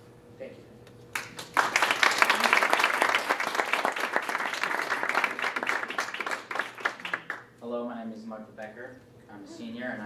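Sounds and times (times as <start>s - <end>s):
audience applauding: 1.2s - 7.4s.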